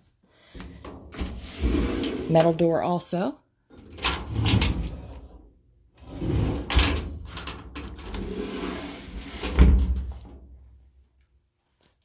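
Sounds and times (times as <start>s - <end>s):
metal closet door rattling: 3.8s - 5.1s, 6.2s - 8.4s.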